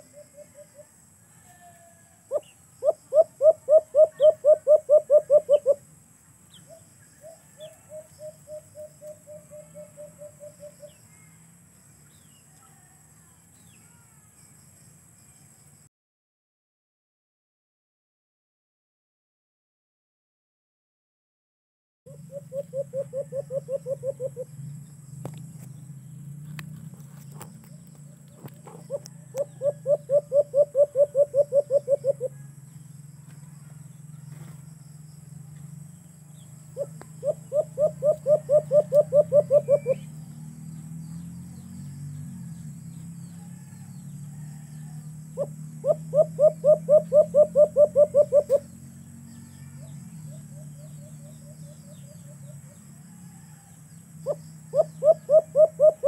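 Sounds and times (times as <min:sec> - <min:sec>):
dove cooing: 0:00.0 - 0:01.0, 0:01.7 - 0:05.9, 0:06.6 - 0:11.3, 0:22.1 - 0:24.6, 0:27.2 - 0:32.6, 0:36.7 - 0:40.1, 0:44.4 - 0:48.7, 0:53.4 - 0:56.0.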